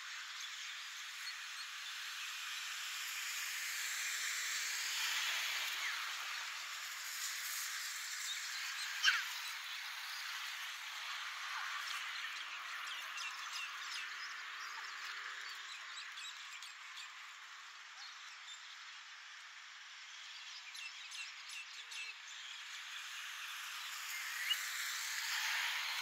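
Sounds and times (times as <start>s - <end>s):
road traffic hiss: 0.0s - 15.8s, 22.3s - 26.0s.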